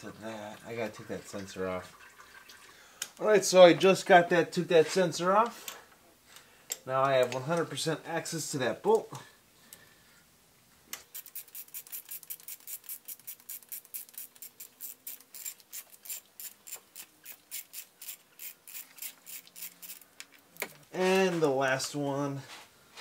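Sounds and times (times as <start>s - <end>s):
ratchet wrench clicking: 11.1s - 20.1s.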